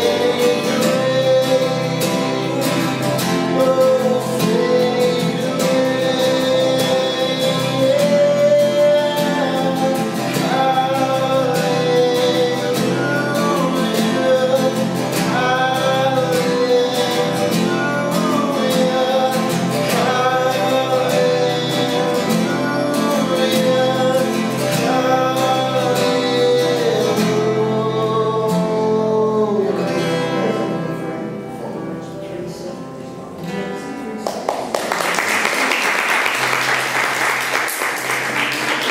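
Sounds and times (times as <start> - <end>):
man singing: 0.0 - 34.2
acoustic guitars: 0.0 - 38.9
applause: 34.2 - 38.9.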